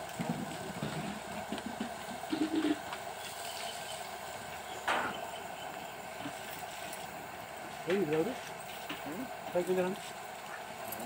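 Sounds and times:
outdoor background noise: 0.0s - 11.0s
dove cooing: 0.9s - 3.6s.

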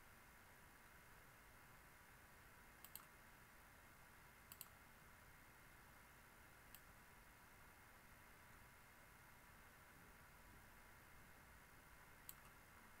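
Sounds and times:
low steady hiss: 0.0s - 13.0s
computer mouse clicks: 2.8s - 3.2s, 4.5s - 4.8s, 6.7s - 6.9s, 12.2s - 12.6s.

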